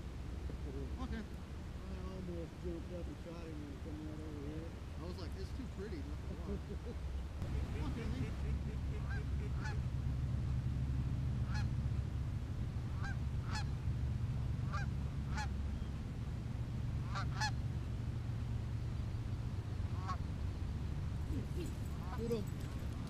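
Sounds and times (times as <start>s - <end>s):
steady low rumble: 0.0s - 23.0s
geese honking: 7.4s - 10.7s, 11.4s - 11.8s, 12.8s - 13.9s, 14.6s - 15.6s, 17.0s - 17.7s, 19.9s - 20.3s, 21.5s - 22.4s.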